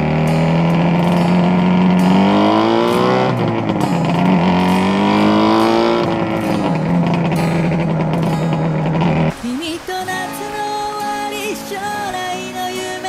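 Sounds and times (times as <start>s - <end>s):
motorcycle engine revving: 0.0s - 9.4s.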